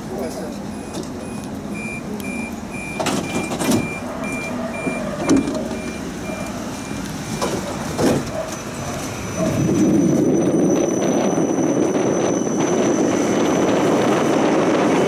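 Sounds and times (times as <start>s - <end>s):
tram humming: 0.0s - 15.0s
short high warning beeps: 0.7s - 7.6s.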